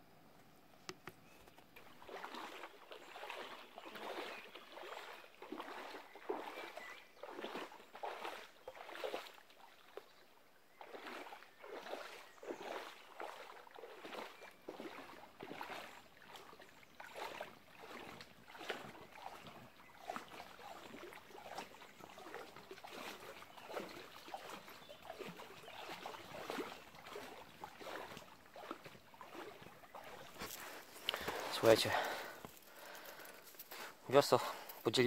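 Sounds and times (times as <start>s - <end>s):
water swishing around kayak: 1.2s - 35.0s
wading splashes: 1.7s - 35.0s.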